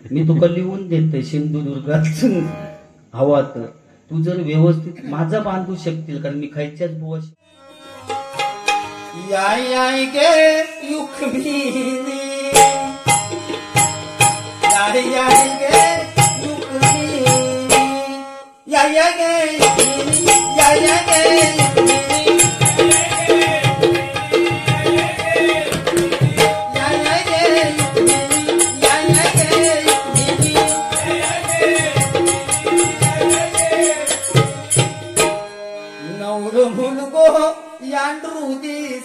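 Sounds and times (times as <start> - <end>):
harmonium melody: 7.4 - 39.0
hand drum beating fast: 19.6 - 35.4.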